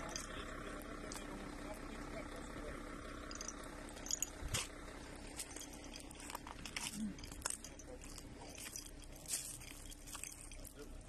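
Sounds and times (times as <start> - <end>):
footsteps crunching over debris: 4.5 - 11.0.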